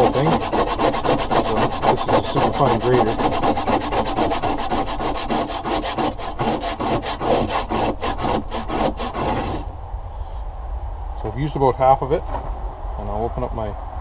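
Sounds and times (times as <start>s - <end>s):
nutmeg scraping on a grater: 0.0s - 9.6s.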